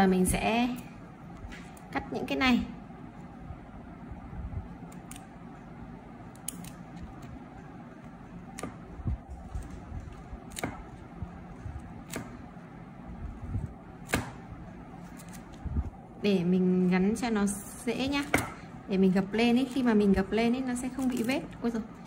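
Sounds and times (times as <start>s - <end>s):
scissors snipping tape: 4.9s - 5.3s, 6.3s - 6.8s.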